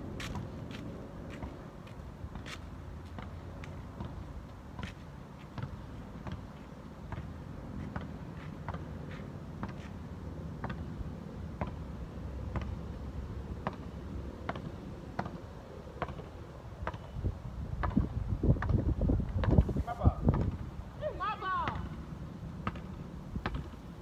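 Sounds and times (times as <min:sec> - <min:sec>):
wind rumbling on microphone: 0:17.1 - 0:20.9.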